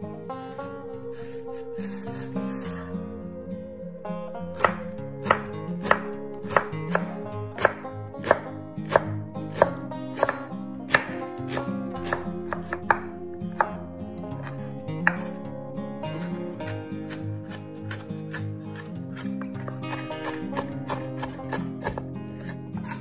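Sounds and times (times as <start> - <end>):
soft background music: 0.0 - 23.0
knife chopping on wooden board: 4.6 - 13.6, 14.4 - 15.4, 17.1 - 23.0.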